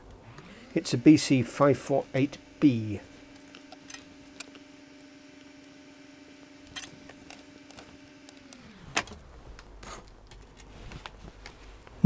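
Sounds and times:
faint hum sliding down: 0:00.0 - 0:11.8
small parts clicking on circuit board: 0:06.6 - 0:08.6.

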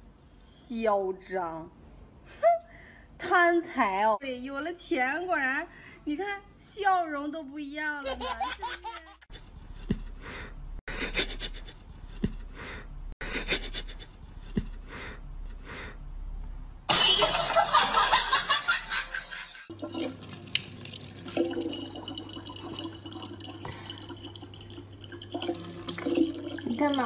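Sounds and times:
tap water pouring into bottle: 0:19.8 - 0:27.0.

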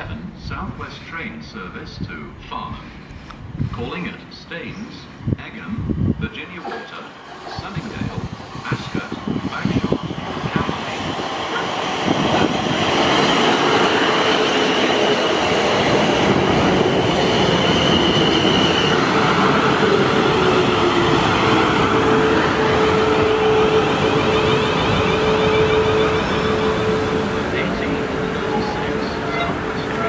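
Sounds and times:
train wheels on rails: 0:06.4 - 0:30.0
high squeal: 0:22.1 - 0:27.2.

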